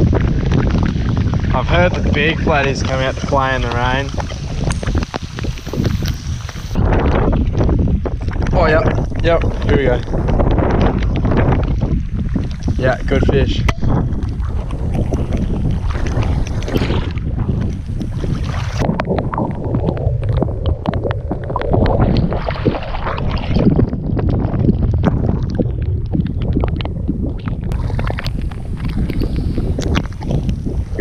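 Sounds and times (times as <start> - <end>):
water sloshing and splashing: 0.0 - 31.0
wind buffeting microphone: 0.0 - 31.0.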